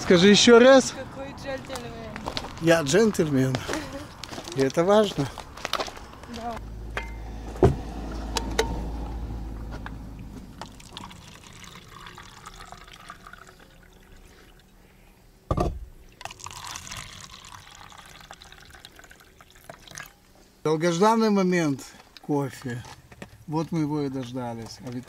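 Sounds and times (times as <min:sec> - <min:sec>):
thump: 0:07.6 - 0:08.8, 0:15.5 - 0:15.9
drink pouring into a cup: 0:10.6 - 0:14.8, 0:16.2 - 0:20.3.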